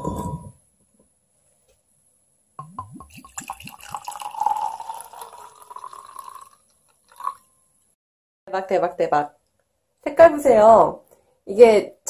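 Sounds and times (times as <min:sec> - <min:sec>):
wine splashing into glass: 0:02.6 - 0:06.6
wine glugging from bottle: 0:02.6 - 0:07.4.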